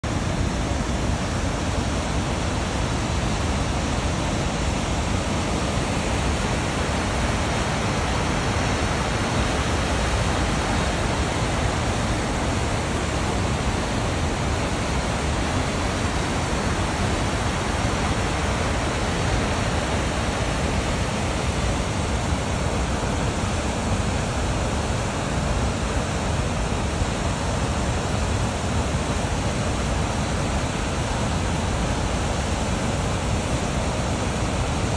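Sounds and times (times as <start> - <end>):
waterfall roar: 0.0 - 34.9.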